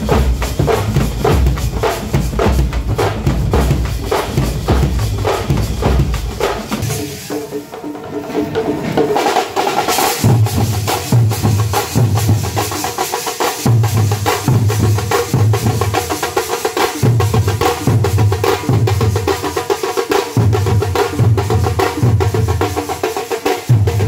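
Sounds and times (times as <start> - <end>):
deep drum beat: 0.0 - 7.4
frame drums beaten with sticks: 0.0 - 24.0.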